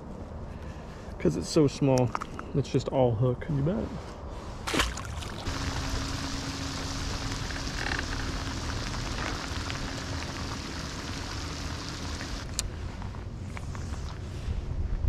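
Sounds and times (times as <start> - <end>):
faint steady hum: 0.0 - 15.0
heavy rain on water: 5.4 - 12.6.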